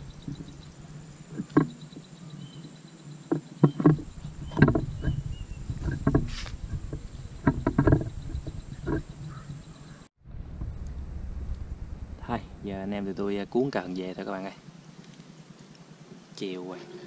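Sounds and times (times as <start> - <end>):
faint bird chirps: 0.0 - 10.1
footsteps and camera handling thumps: 3.3 - 9.4.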